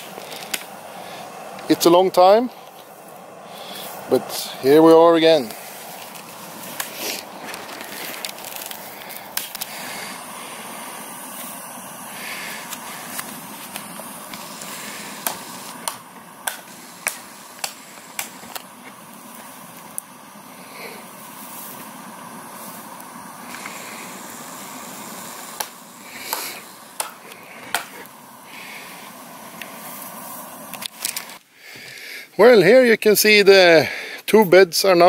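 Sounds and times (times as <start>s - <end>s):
axe chopping branches: 26.3s - 27.9s.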